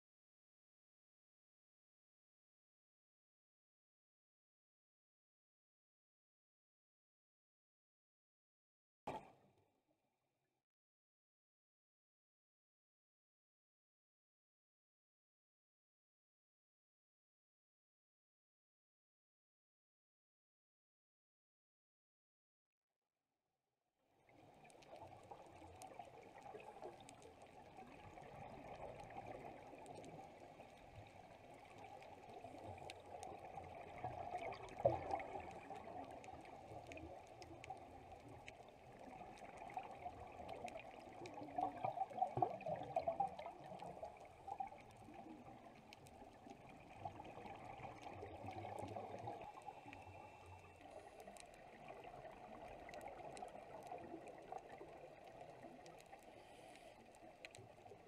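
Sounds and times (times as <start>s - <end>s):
underwater gurgling bubbles: 24.3s - 58.0s
faint clicks: 24.6s - 58.0s
steady hiss: 56.3s - 57.1s.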